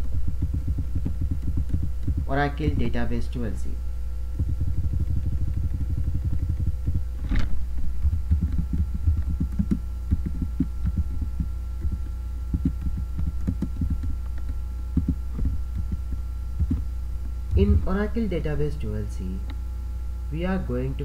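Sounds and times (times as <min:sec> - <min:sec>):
keyboard typing: 0:00.0 - 0:03.0, 0:04.4 - 0:16.8
electrical hum: 0:00.0 - 0:21.0.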